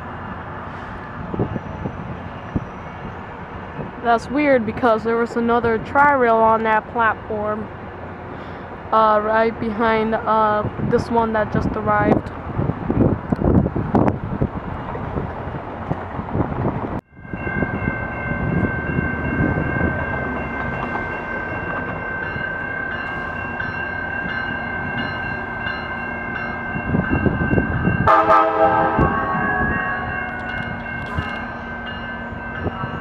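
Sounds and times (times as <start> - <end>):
train rumbling: 0.0 - 33.0
train horn blast: 28.0 - 30.2.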